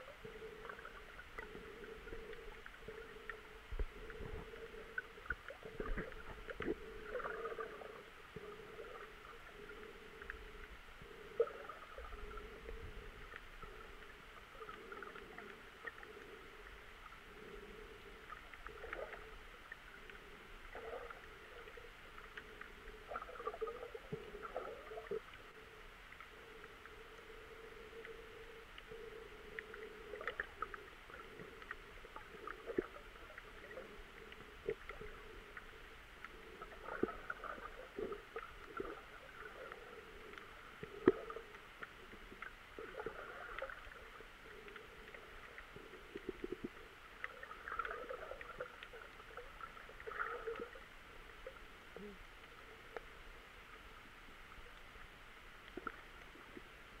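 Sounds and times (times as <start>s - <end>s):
muffled underwater hum: 0.0s - 57.0s.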